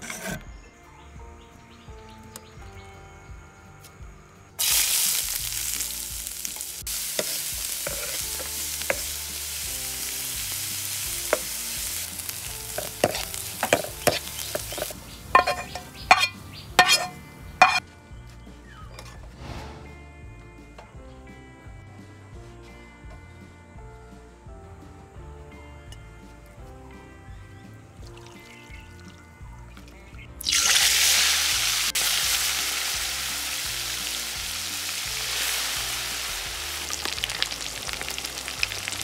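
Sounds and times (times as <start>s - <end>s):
wooden spoon scraping pan: 0.0s - 0.5s, 7.2s - 9.2s, 11.3s - 17.8s
onions sizzling in oil: 4.6s - 17.8s, 30.4s - 39.0s.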